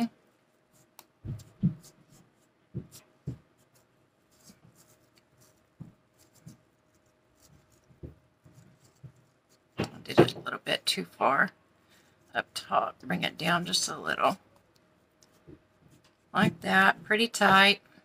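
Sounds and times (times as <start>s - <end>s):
soft rustles: 0.0s - 10.6s
small bumps: 0.8s - 10.6s.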